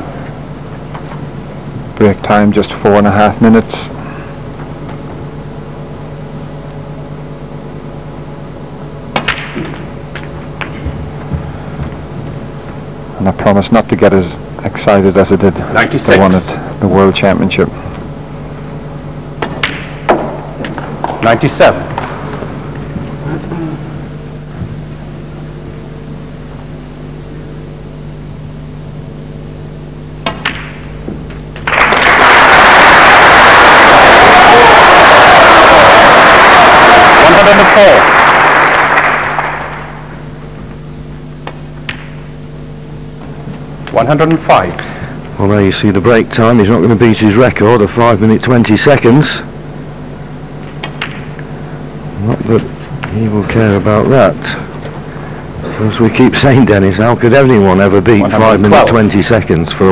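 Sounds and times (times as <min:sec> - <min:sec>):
arena hum: 0:00.0 - 0:59.9
crowd applause: 0:31.6 - 0:40.2
snooker balls clicking: 0:50.6 - 0:51.5.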